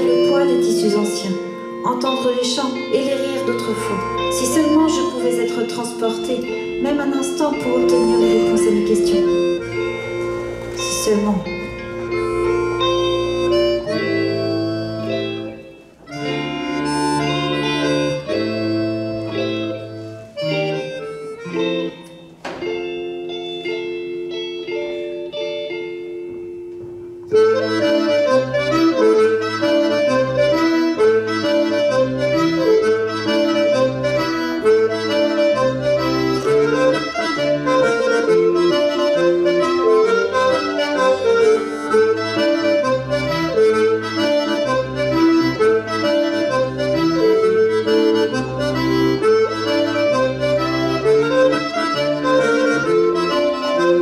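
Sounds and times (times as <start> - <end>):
accordion dance music: 0.0 - 54.0
bass line: 7.5 - 19.8.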